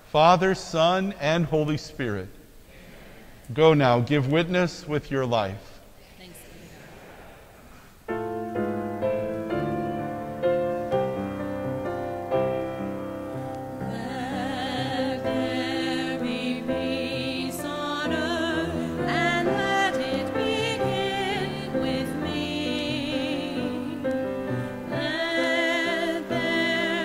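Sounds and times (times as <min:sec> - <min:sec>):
keyboard playing held chords: 0:08.1 - 0:27.0
solo singer with vibrato: 0:13.7 - 0:27.0.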